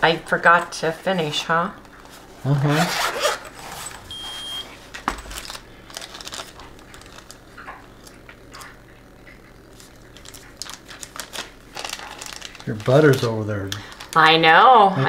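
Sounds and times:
short electronic beep: 4.1 - 4.7
packaging clicks and rustles: 4.9 - 8.7, 9.8 - 14.2.

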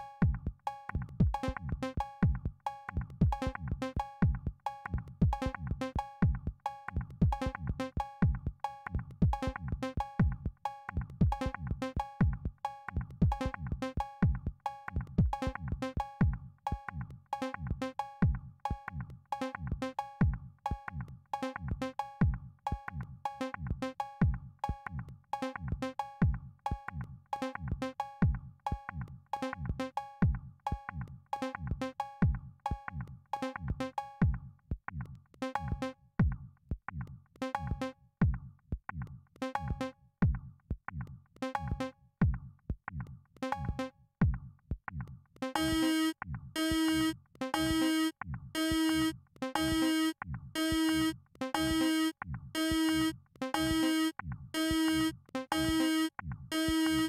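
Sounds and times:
drum machine bass drums: 0.0 - 16.9, 18.2 - 19.1, 19.7 - 21.1, 21.7 - 26.8, 27.7 - 29.0, 30.2 - 31.0, 31.7 - 37.0, 37.6 - 49.8, 50.4 - 57.0
short repeated synth notes: 45.6 - 57.0.

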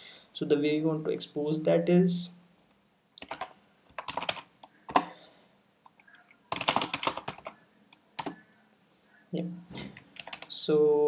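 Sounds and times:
computer keyboard typing: 3.2 - 5.1, 5.9 - 7.6, 8.2 - 8.4, 10.0 - 10.6.

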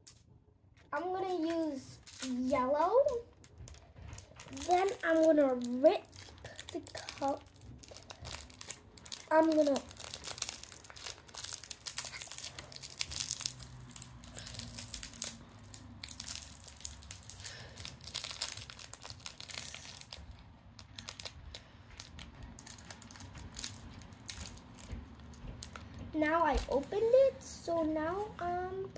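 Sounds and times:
plastic packet crinkling: 1.0 - 26.9.

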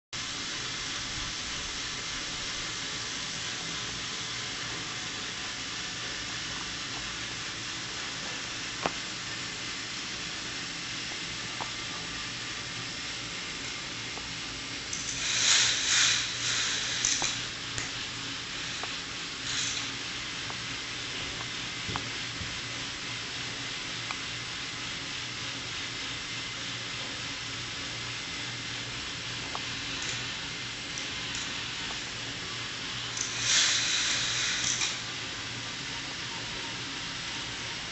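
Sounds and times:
lift motor and chain whirring: 0.6 - 22.3, 27.8 - 37.9
toy train rushing down track: 13.6 - 21.8, 29.1 - 37.8.

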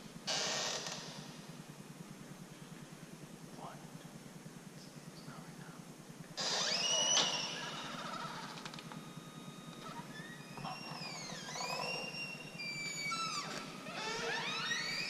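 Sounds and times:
metal door creaking: 0.2 - 1.3, 6.4 - 15.0.

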